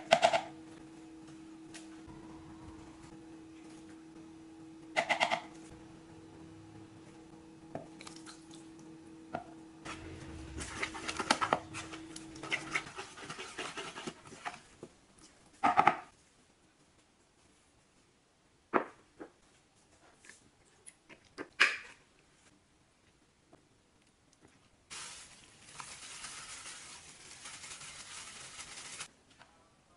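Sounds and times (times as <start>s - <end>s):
utensil stirring batter in bowl: 10.6s - 14.6s.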